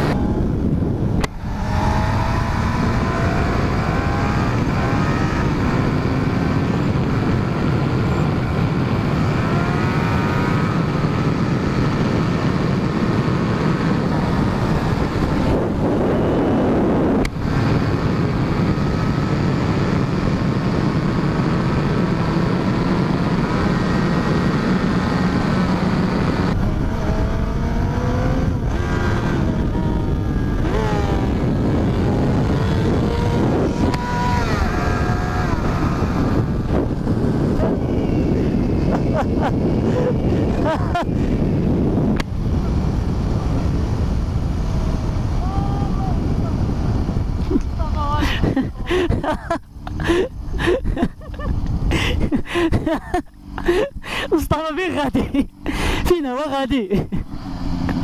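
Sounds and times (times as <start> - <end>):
heavy wind rush: 0.0 - 58.0
motorcycle engine revving: 0.0 - 58.0.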